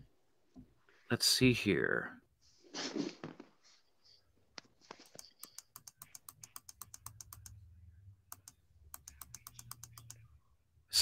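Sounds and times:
faint keyboard typing: 4.6s - 7.7s, 8.3s - 10.3s.

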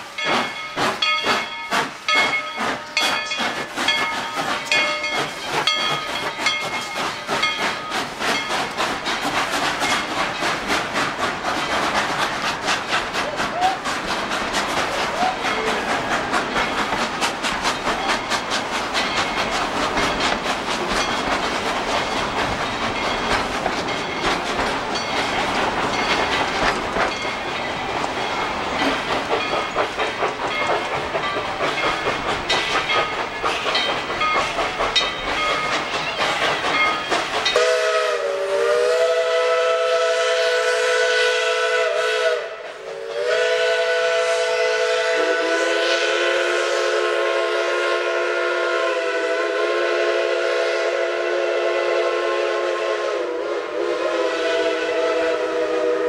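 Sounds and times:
chime steam whistle: 0.0s - 8.8s, 30.5s - 56.0s
steam locomotive exhaust beats: 0.0s - 56.0s.

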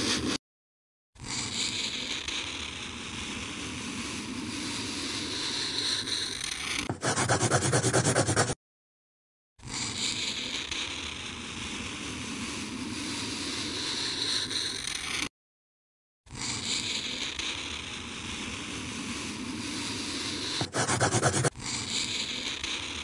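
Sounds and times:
pencil scribbling on paper: 0.0s - 0.4s, 6.8s - 8.6s, 19.9s - 22.8s.

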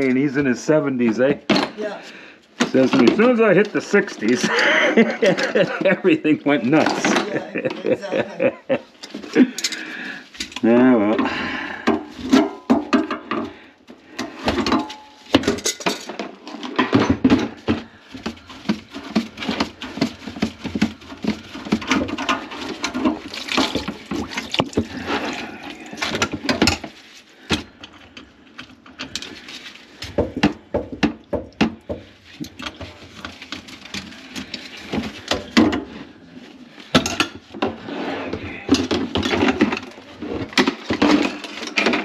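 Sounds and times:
water running into a bucket: 18.2s - 26.6s.

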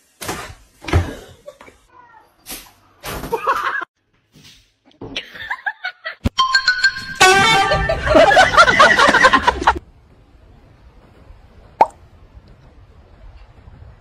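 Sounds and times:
people laughing and exclaiming: 7.7s - 9.8s.

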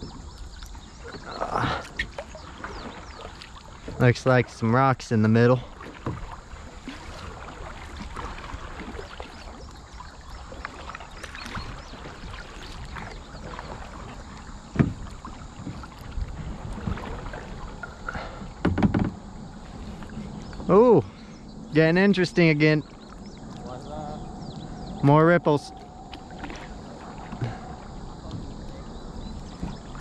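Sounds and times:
paddle splashing water: 0.0s - 30.0s
sharp knocks on kayak: 14.7s - 16.0s, 18.6s - 19.2s.

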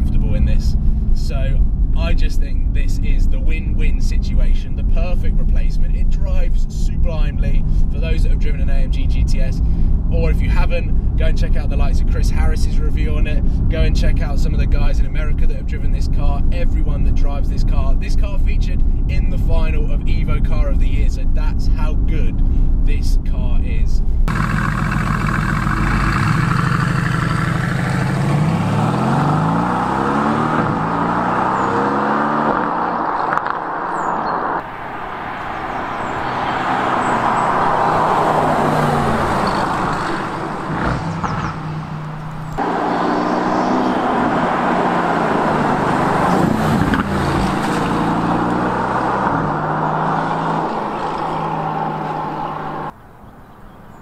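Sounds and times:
car engine accelerating hard: 24.3s - 52.9s.

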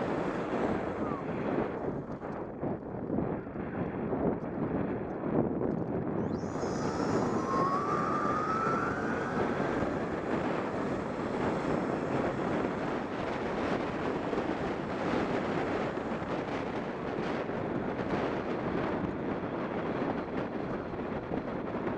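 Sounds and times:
wind buffeting microphone: 0.0s - 21.9s
electric motor whine: 6.2s - 16.6s.

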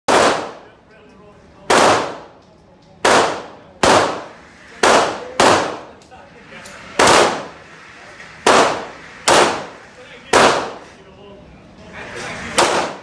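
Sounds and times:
handgun shots echoing: 0.1s - 0.7s, 1.7s - 2.4s, 3.0s - 6.0s, 7.0s - 7.6s, 8.5s - 10.8s, 12.6s - 13.0s.

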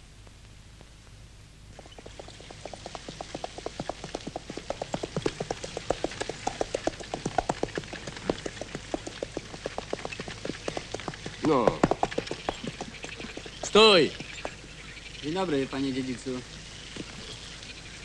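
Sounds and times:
horse hooves trotting: 1.7s - 15.1s.

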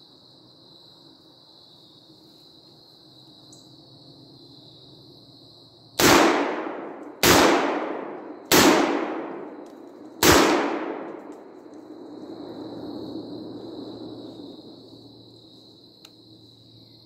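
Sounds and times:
gunshot echo: 6.0s - 9.6s, 10.2s - 11.4s
shotgun blasts: 6.0s - 9.6s, 10.2s - 11.3s.

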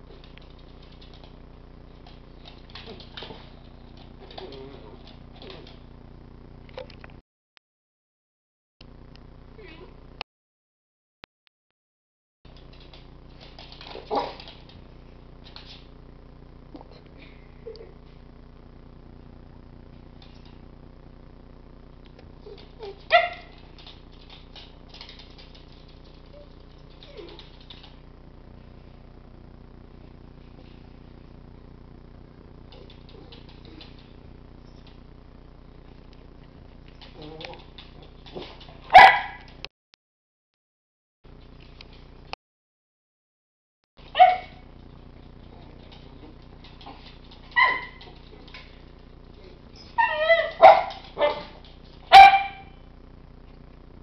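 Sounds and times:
dog claws clicking on wooden floor: 0.1s - 1.4s, 2.0s - 5.8s, 12.5s - 14.8s, 22.5s - 28.0s, 45.4s - 48.9s
dog barking: 23.1s - 23.6s, 38.9s - 39.5s, 44.1s - 44.6s, 47.5s - 48.1s, 50.0s - 52.8s
dog yelping: 38.9s - 39.4s, 44.1s - 44.6s, 47.5s - 48.2s, 49.8s - 52.7s
dog whimpering: 49.8s - 50.6s.

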